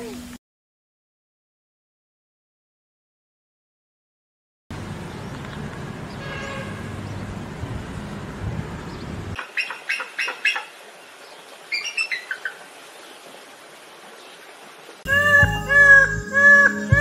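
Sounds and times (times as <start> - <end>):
faint bird calls: 8.9 - 12.6
bald eagle calling: 9.4 - 10.7, 11.7 - 12.6, 15.1 - 17.0.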